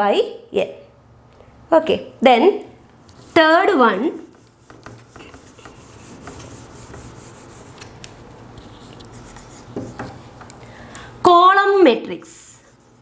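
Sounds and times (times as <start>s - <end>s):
eraser rubbing on whiteboard: 4.1s - 8.0s, 8.6s - 10.3s
marker writing on whiteboard: 4.1s - 10.5s.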